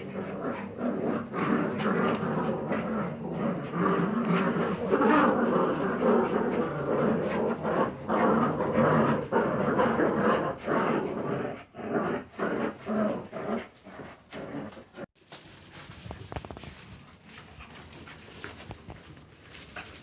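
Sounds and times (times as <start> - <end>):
puppies growling: 0.0 - 15.1.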